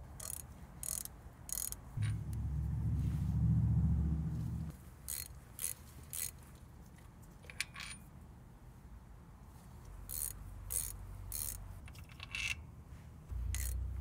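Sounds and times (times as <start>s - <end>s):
ratchet wrench clicking: 0.1s - 2.3s, 5.1s - 6.4s, 10.1s - 12.6s, 13.5s - 14.0s
bolts spinning out: 1.6s - 2.8s, 13.5s - 13.8s
low steady hum: 2.0s - 4.7s, 12.6s - 14.0s.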